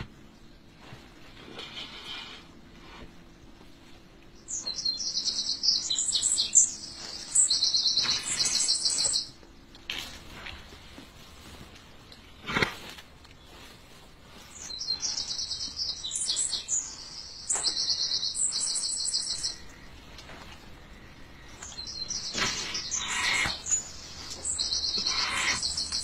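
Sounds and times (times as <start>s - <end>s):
small birds chirping: 0.0s - 26.0s
rustling: 6.7s - 17.7s.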